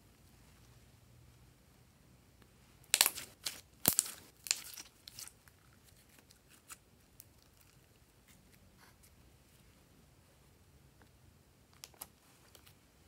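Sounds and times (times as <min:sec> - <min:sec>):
slime crackling and popping: 0:02.8 - 0:07.8.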